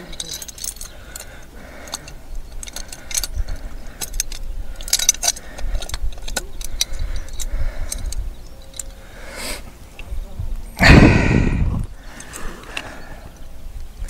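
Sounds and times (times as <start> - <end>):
metal fixings clinking: 0.0 - 9.1.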